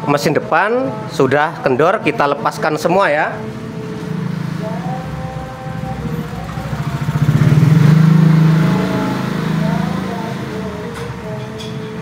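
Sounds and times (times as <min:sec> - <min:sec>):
motorcycle engine running: 0:03.7 - 0:11.0.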